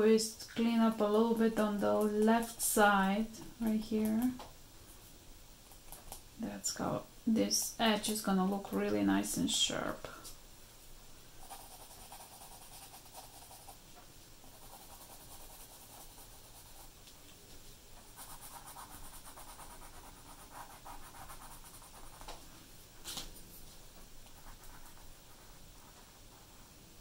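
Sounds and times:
pencil scratching on paper: 11.4s - 13.8s, 14.5s - 16.9s, 18.1s - 22.3s, 24.3s - 26.6s.

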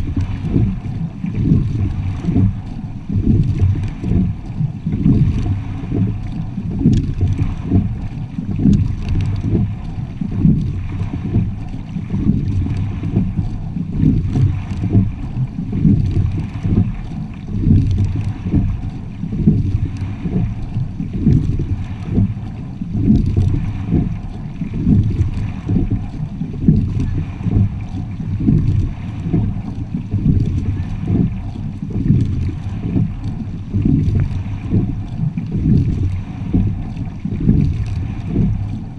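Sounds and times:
water rushing along boat hull: 0.0s - 38.9s
wind noise on microphone: 0.0s - 38.9s.

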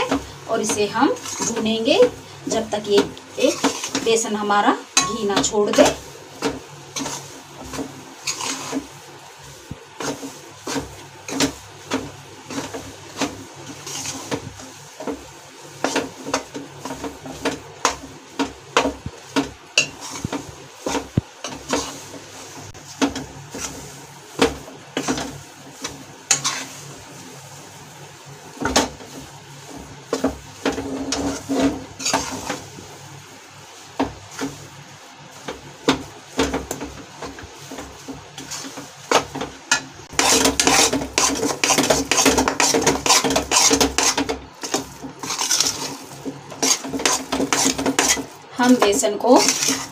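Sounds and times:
metal spatula scraping metal pan: 0.0s - 8.9s, 10.0s - 14.4s, 19.4s - 22.2s, 23.1s - 26.9s, 30.1s - 32.6s, 37.7s - 49.9s.

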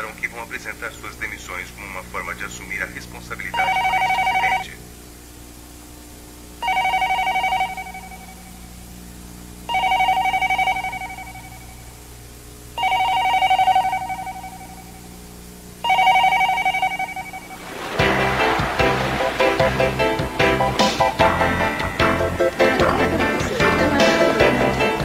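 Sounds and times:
telephone electronic ringing: 3.5s - 4.8s, 6.6s - 8.6s, 9.7s - 11.9s, 12.8s - 15.0s, 15.8s - 17.6s.

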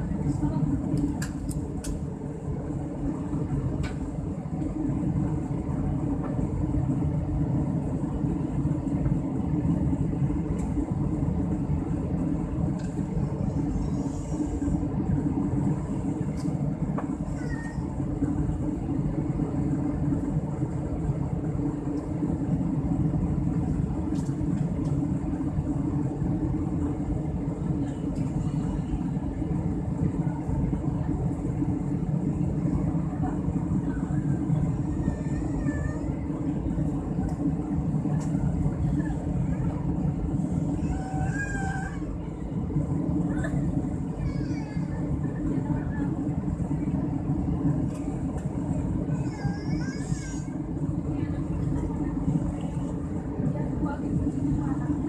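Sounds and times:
airliner engines rumbling: 0.0s - 55.0s.

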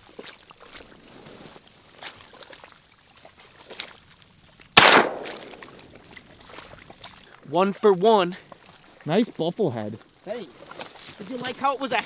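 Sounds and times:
shotgun shot with echo: 4.8s - 5.7s.

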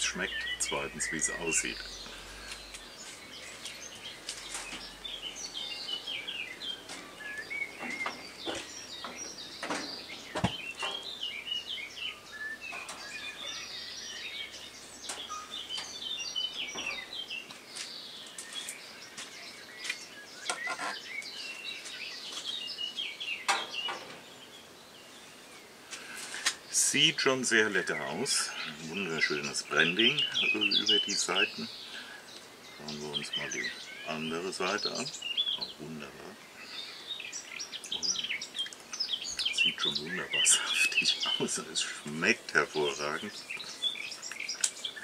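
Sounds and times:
songbirds singing and chirping: 0.0s - 45.0s
sharp clicks and knocks: 7.8s - 11.0s.

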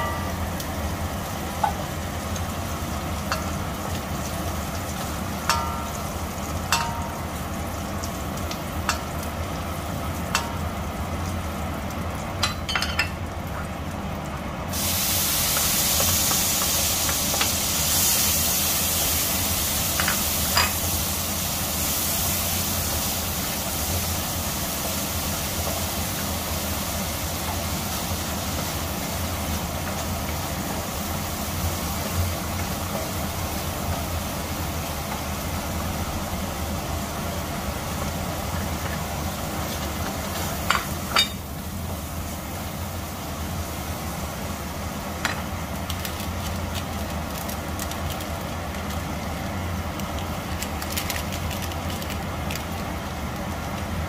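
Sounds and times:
low steady hum: 0.0s - 14.6s
vegetables sizzling in oil: 0.0s - 54.0s.

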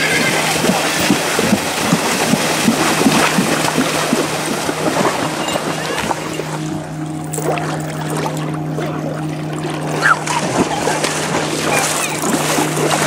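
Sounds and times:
hooves splashing through water: 0.0s - 13.0s
steady low hum: 0.3s - 13.0s.

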